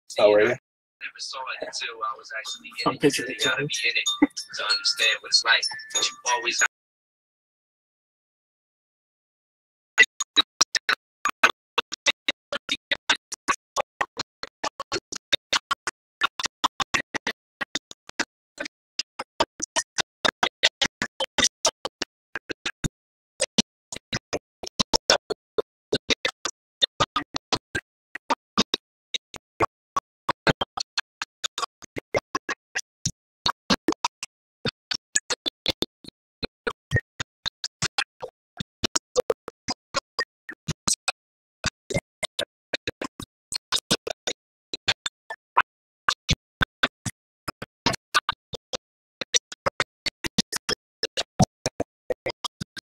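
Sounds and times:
glitchy stream snippets: 0:00.1 - 0:06.7.

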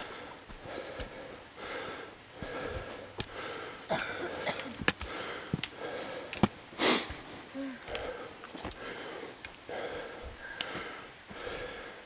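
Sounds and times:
footsteps on trail: 0:00.0 - 0:11.9
heavy breathing: 0:00.0 - 0:12.0.

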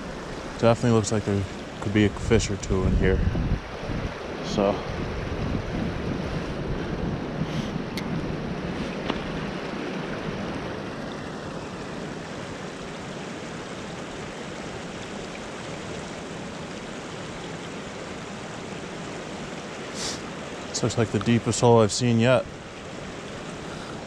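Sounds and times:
creek water rushing: 0:00.0 - 0:24.0.

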